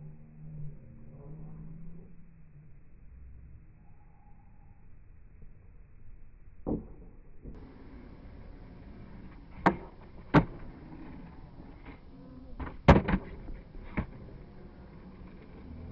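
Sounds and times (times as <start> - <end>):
skateboard landing slap: 6.6 - 15.8
skateboard pop and clack: 6.7 - 15.8
skateboard wheels rolling: 6.7 - 15.9
skateboard scraping ledge: 7.6 - 15.9.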